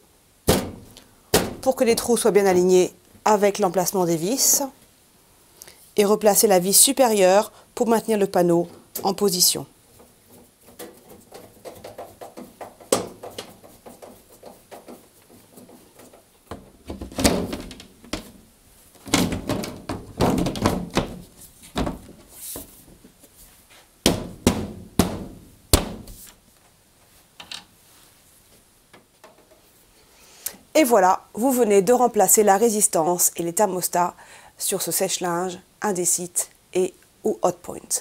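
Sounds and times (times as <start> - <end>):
metal panel knocks and thuds: 0.4 - 1.8, 10.0 - 22.7, 24.0 - 26.3.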